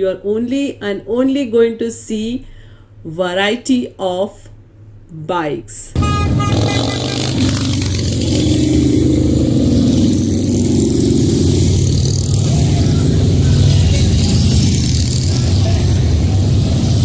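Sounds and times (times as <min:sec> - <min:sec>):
motorcycles riding past: 0:06.2 - 0:17.0.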